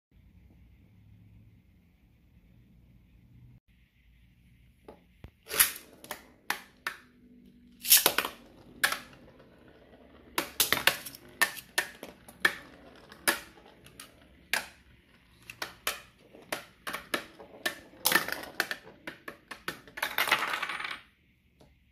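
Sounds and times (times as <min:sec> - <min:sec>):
spinning tops clashing metallic clicks: 0:05.5 - 0:06.0, 0:07.8 - 0:08.3.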